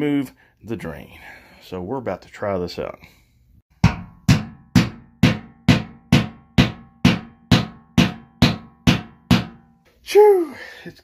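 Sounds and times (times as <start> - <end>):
hammer striking metal: 3.8 - 9.7.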